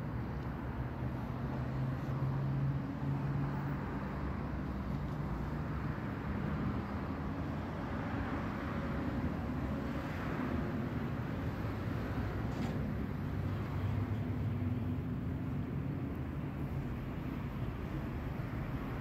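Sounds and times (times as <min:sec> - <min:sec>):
street traffic rumble: 0:00.0 - 0:19.0.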